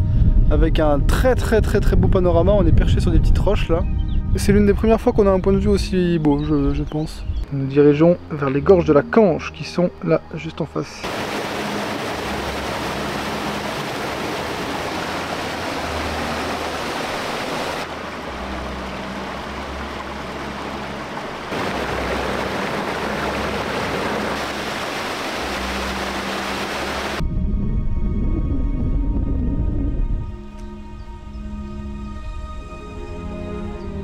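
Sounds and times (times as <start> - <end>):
stream water over rocks: 11.0 - 27.2.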